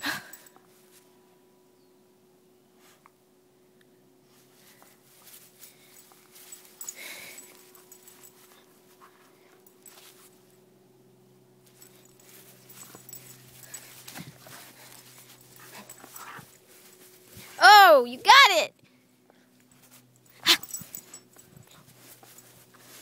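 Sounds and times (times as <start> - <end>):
soft rustles: 4.3 - 10.6, 11.6 - 17.6, 19.6 - 23.0
dog panting: 12.8 - 16.6.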